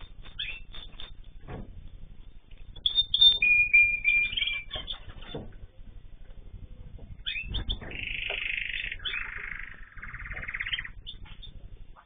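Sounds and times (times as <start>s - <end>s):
whistled bird notes: 0.0s - 1.1s, 2.8s - 5.4s, 7.2s - 11.6s
finches chirping: 0.0s - 1.2s, 2.7s - 5.9s, 6.8s - 12.0s.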